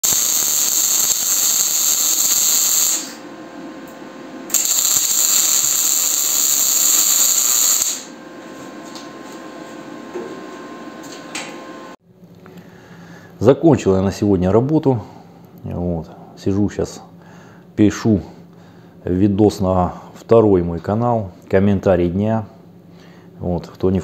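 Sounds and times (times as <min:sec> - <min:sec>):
arc welding crackling sizzle: 0:00.0 - 0:08.2.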